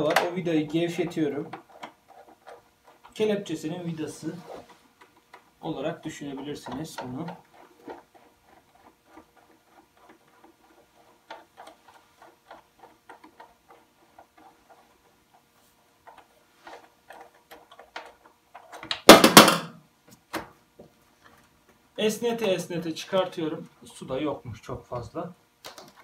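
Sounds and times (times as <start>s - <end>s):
hose scraping rustle: 3.2s - 5.0s.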